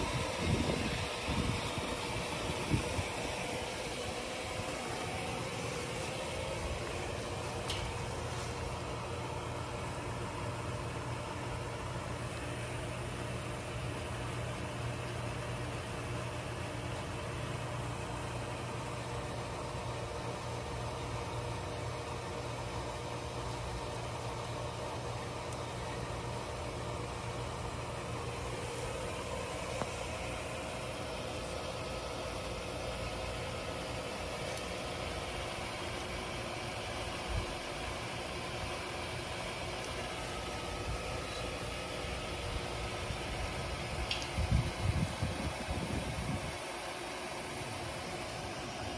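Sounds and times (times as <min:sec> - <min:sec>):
low mains hum: 0:00.0 - 0:48.9
small click: 0:44.0 - 0:44.4.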